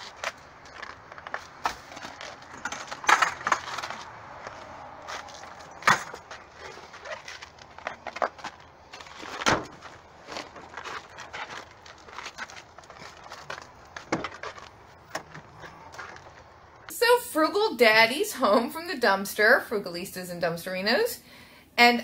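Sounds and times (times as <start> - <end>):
cardboard boxes handled: 0.0 - 16.6
footsteps crunching on icy snow: 0.0 - 16.9.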